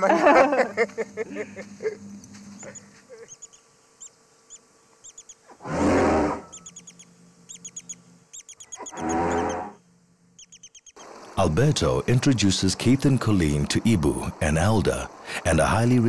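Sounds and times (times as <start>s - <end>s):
small birds chirping: 1.6s - 16.0s
elephant trumpeting blast: 5.5s - 6.5s, 8.8s - 9.8s.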